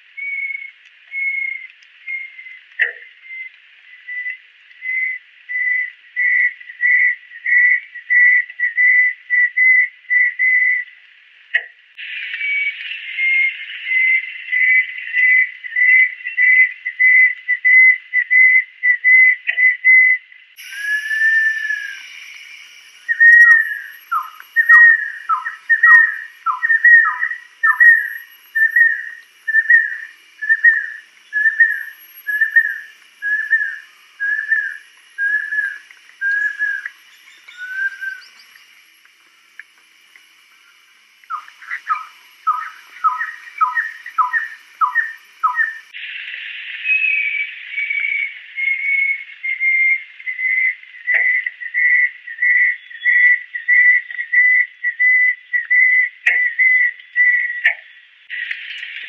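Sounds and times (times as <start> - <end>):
bird whistling slurred notes: 0.2 - 2.6, 12.4 - 38.7, 41.2 - 46.1, 46.8 - 57.6.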